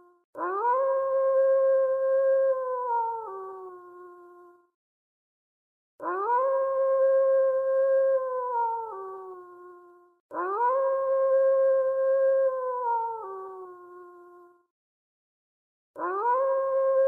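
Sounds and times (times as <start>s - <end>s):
dog howling: 16.0s - 17.0s.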